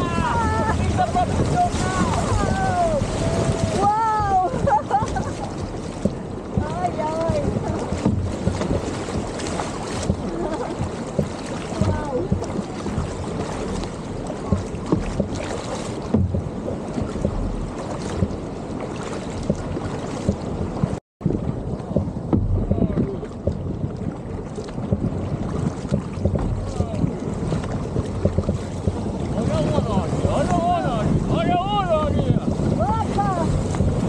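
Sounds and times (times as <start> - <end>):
paddles splashing in water: 0.0 - 34.0
water washing along hull: 0.0 - 34.0
wind buffeting microphone: 0.0 - 34.0.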